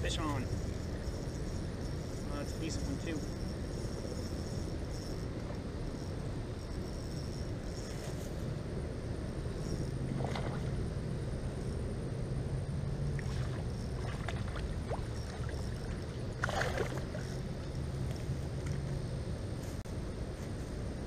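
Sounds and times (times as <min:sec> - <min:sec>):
steady low hum: 0:00.0 - 0:21.0
fish splashing and thrashing: 0:13.2 - 0:17.4.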